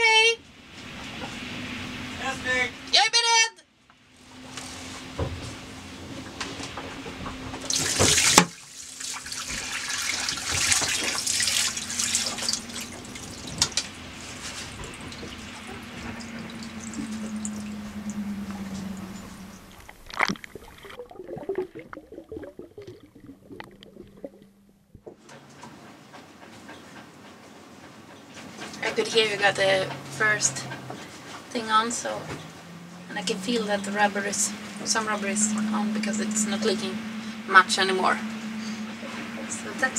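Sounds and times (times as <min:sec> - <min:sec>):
seawater rushing and spraying: 0:00.0 - 0:03.0, 0:04.2 - 0:21.0, 0:28.4 - 0:39.9
steady low hum: 0:03.7 - 0:39.9
water splashes: 0:04.2 - 0:25.0.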